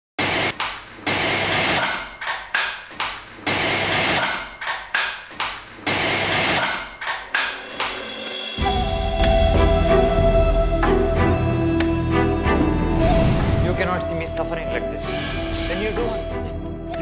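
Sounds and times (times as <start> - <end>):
sharp noisy hits: 0.2 - 8.8.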